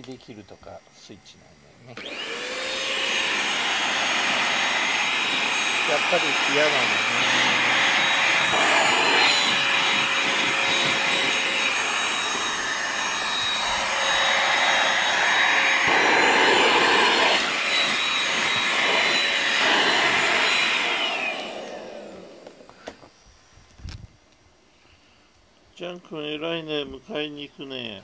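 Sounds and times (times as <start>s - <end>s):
handheld vacuum cleaner running: 2.0s - 23.0s
vacuum motor winding down: 2.0s - 23.0s.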